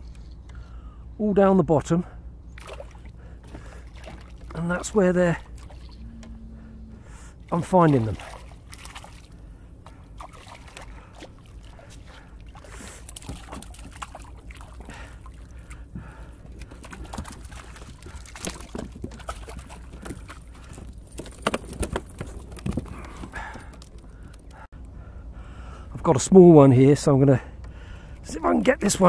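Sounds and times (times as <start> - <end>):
low water background: 0.0 - 29.0
fishing tackle clicks and knocks: 19.9 - 24.6.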